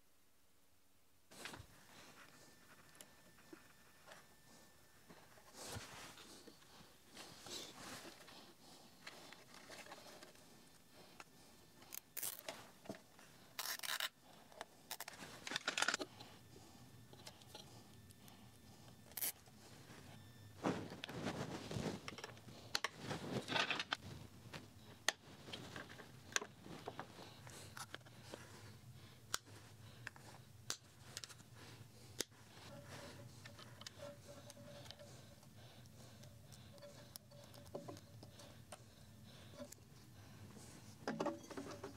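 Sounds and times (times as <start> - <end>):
hand handling noises: 1.3 - 41.9
cable ties zipping: 13.6 - 14.2.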